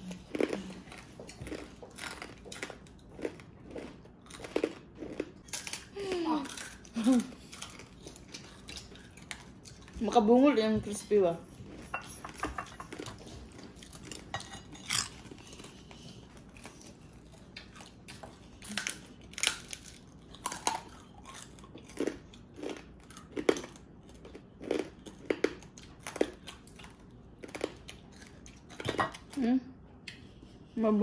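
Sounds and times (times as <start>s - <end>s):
crunchy food being chewed: 0.0s - 10.1s, 11.6s - 29.4s.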